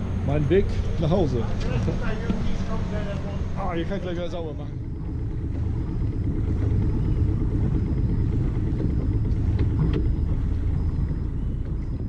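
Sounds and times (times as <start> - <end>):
boat diesel engine rumble: 0.0 - 12.0
faint high beeps: 5.1 - 12.0.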